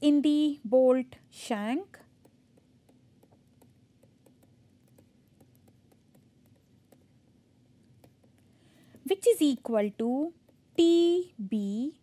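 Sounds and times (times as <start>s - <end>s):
low steady hum: 0.0s - 12.0s
stylus clicking on tablet: 2.0s - 7.2s, 7.8s - 11.1s.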